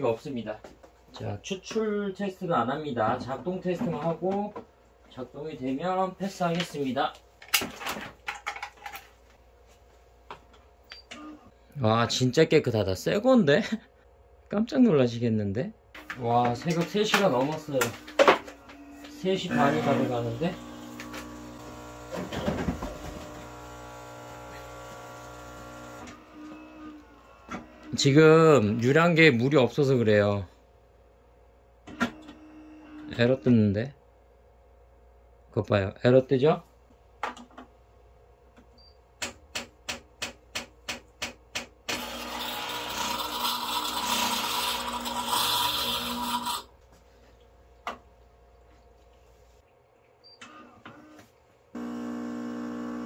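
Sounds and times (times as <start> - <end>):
coffee machine pump humming: 17.3 - 28.7, 42.0 - 46.7, 51.8 - 53.0
water pump running: 19.6 - 26.1, 51.8 - 53.0.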